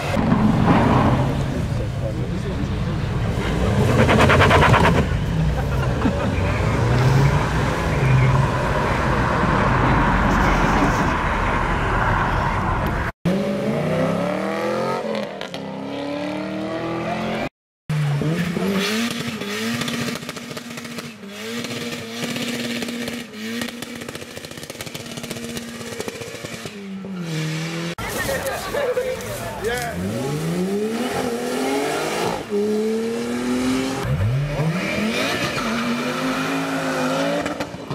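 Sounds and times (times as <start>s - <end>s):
engine revving high: 13.3s - 17.5s, 29.9s - 37.7s.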